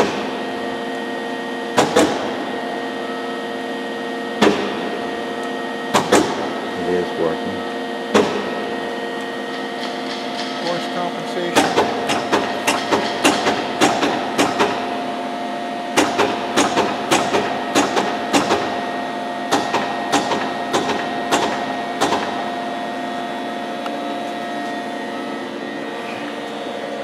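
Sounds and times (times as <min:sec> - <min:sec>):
grinder humming: 0:03.8 - 0:27.0.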